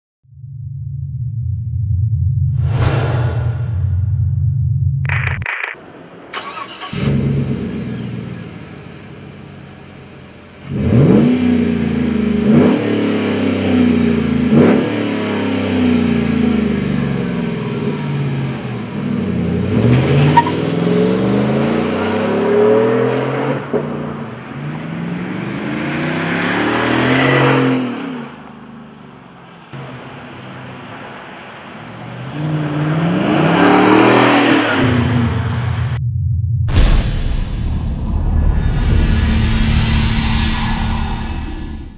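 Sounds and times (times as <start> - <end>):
pickup truck engine revving: 6.4 - 23.6.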